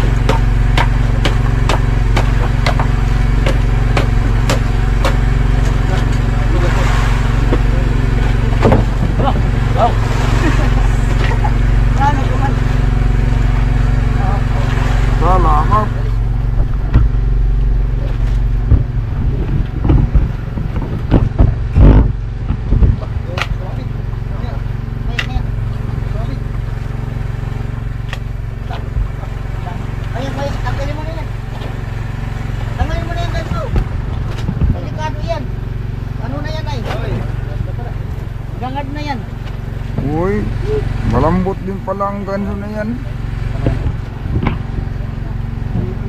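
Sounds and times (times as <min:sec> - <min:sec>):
sharp knocks: 0:00.0 - 0:06.1, 0:08.6 - 0:09.5, 0:16.5 - 0:23.6
boat engine running: 0:00.0 - 0:46.0.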